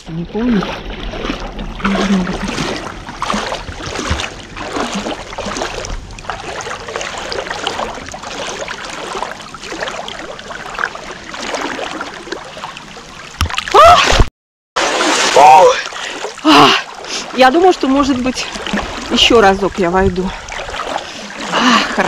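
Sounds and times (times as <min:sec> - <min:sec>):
water noise: 0:00.0 - 0:22.0
person crying out: 0:13.7 - 0:14.2, 0:15.4 - 0:16.8.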